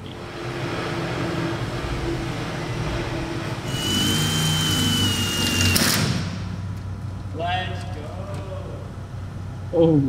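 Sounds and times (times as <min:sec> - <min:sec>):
cordless drill hum: 0:03.7 - 0:06.0.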